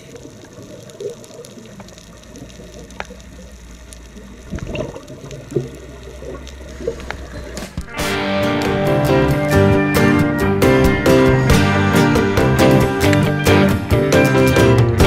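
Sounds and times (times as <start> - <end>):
steady low rumble: 0.0 - 8.0
underwater bubbles gurgling: 0.0 - 8.0.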